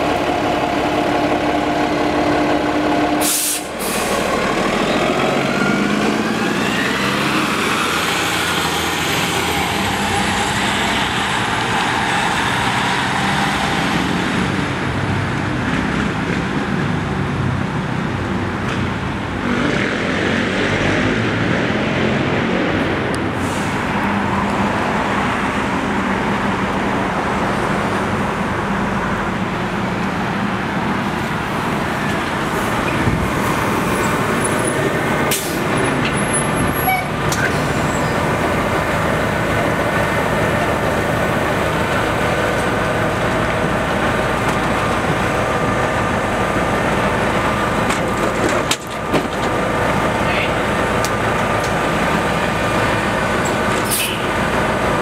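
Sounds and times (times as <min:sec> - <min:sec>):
bus engine running: 0:00.0 - 0:20.0, 0:22.3 - 0:55.0
street traffic: 0:00.0 - 0:55.0
air brake hiss: 0:03.2 - 0:04.2, 0:23.4 - 0:23.8, 0:53.9 - 0:54.2.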